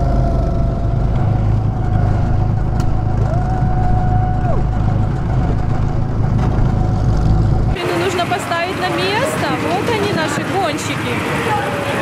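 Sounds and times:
go-kart engine whine: 0:00.0 - 0:12.0
go-karts rumbling: 0:00.0 - 0:12.0.

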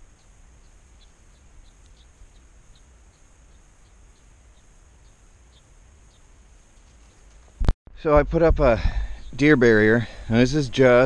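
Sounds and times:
high insect drone: 0:00.0 - 0:07.5
small birds chirping: 0:00.0 - 0:07.6, 0:08.8 - 0:11.0.

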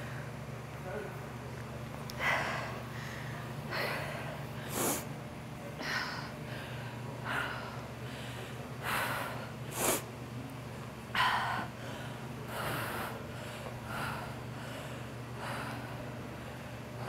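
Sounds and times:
steady low hum: 0:00.0 - 0:17.0
woman breathing hard: 0:02.2 - 0:05.1, 0:05.8 - 0:10.0, 0:11.1 - 0:17.0.

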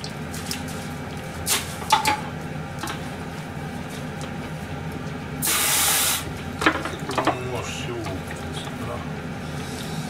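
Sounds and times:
steady low hum: 0:00.0 - 0:10.0
dishes clattering in sink: 0:01.8 - 0:02.3, 0:06.6 - 0:08.6.

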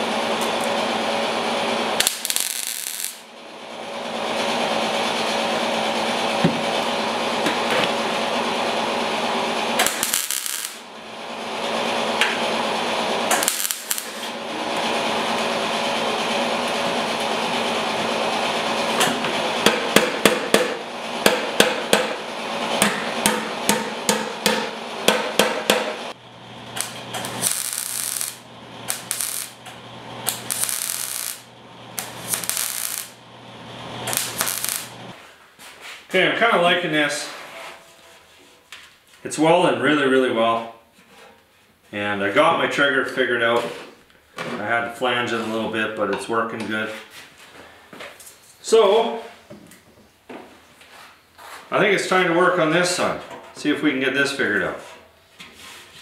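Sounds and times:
welder crackling: 0:01.9 - 0:03.3, 0:09.7 - 0:10.9, 0:12.0 - 0:15.6, 0:24.5 - 0:35.2
welder hiss and hum: 0:02.0 - 0:03.3, 0:09.8 - 0:10.9, 0:13.3 - 0:14.4, 0:23.8 - 0:35.2.

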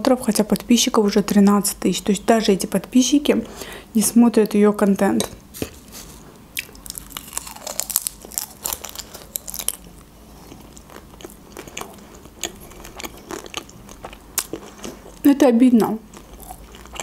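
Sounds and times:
chewing and crunching: 0:06.6 - 0:15.2, 0:16.1 - 0:17.0.

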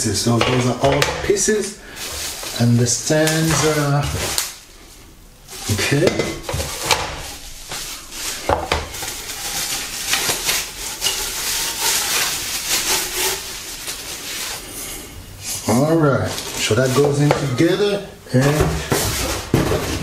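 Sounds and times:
plastic packaging crinkling: 0:00.6 - 0:18.0.

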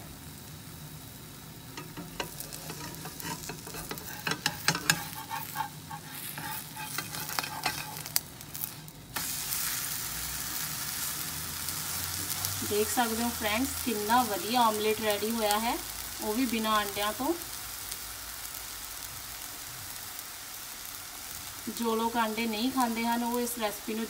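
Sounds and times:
omelette sizzling in a pan: 0:00.0 - 0:24.0
metal spatula scraping a pan: 0:01.8 - 0:08.8.

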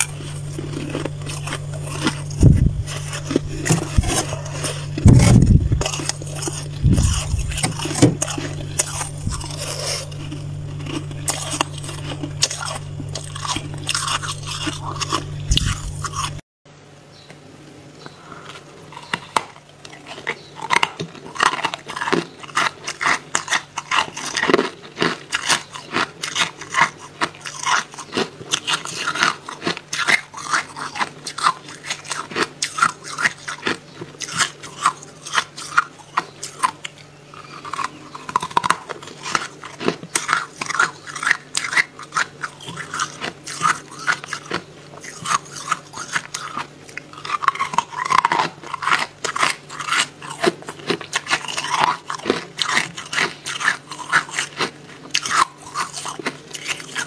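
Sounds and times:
chewing crunchy frost: 0:00.0 - 0:16.4, 0:18.0 - 0:57.0
steady low hum: 0:00.0 - 0:57.0.

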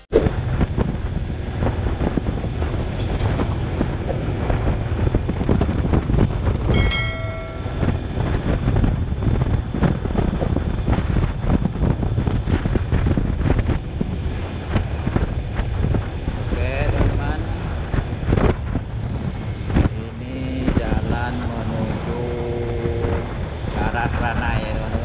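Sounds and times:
wind buffeting microphone: 0:00.1 - 0:25.0
scooter engine and tyre rumble: 0:00.2 - 0:25.0
brief high tone: 0:06.7 - 0:08.0.

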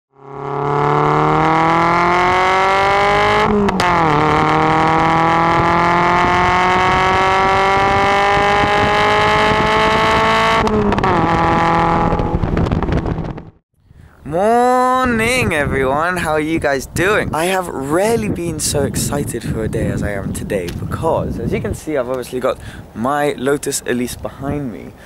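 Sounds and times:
car exhaust accelerating: 0:00.1 - 0:13.6.

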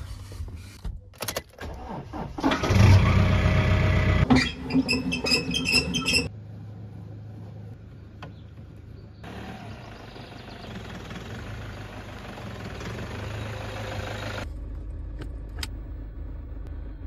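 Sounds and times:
engine cranking and starting: 0:01.5 - 0:03.4.

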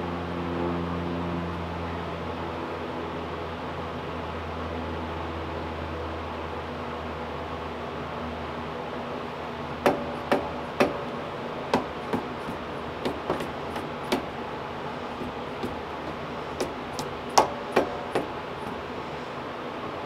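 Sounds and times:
mallet knocking on metal: 0:09.9 - 0:14.4, 0:15.1 - 0:18.9.

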